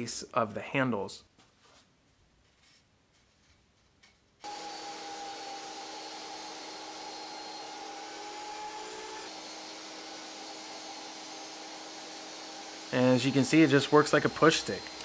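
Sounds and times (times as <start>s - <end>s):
table saw cutting wood: 4.4s - 15.0s.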